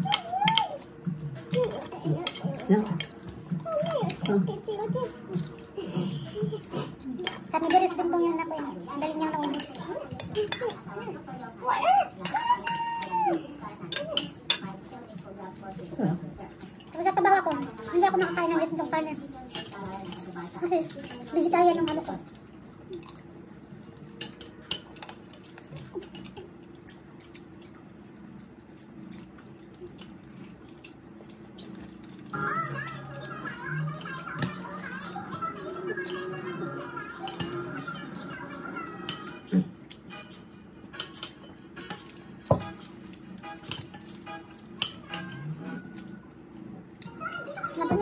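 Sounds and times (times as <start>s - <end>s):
dishes and cutlery clinking: 0.0s - 48.0s
faint background music: 0.0s - 48.0s
tableware clinking: 40.1s - 46.0s.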